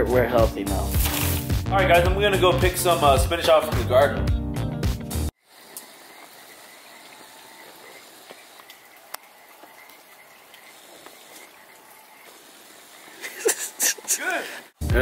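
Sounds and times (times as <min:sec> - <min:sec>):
frogs calling: 0:05.4 - 0:14.4
insects calling: 0:05.4 - 0:14.8
faint clicks: 0:07.0 - 0:12.4.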